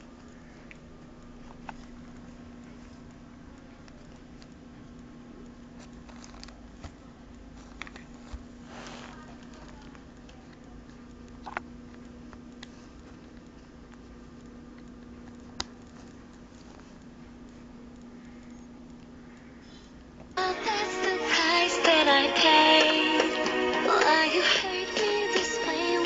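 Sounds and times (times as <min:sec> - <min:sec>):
steady low hum: 0:00.0 - 0:26.0
short rustle: 0:07.6 - 0:09.8.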